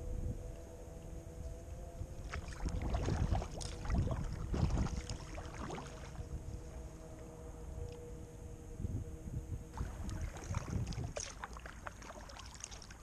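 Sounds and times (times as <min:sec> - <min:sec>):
paddle splashing water: 0:02.2 - 0:06.2, 0:09.8 - 0:13.0.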